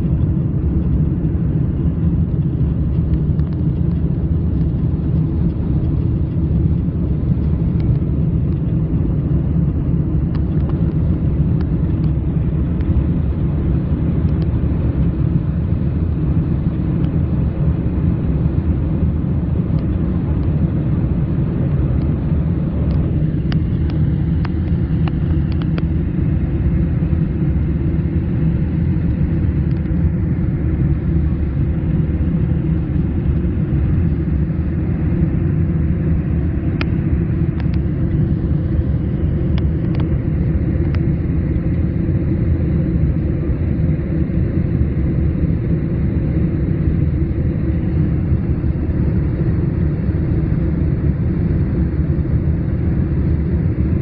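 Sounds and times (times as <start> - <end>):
airliner cabin roar: 0.0 - 54.0.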